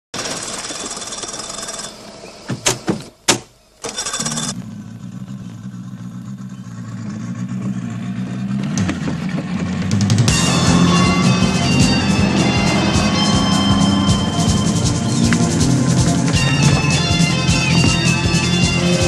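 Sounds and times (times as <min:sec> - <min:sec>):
outboard motor running: 0:08.7 - 0:19.0.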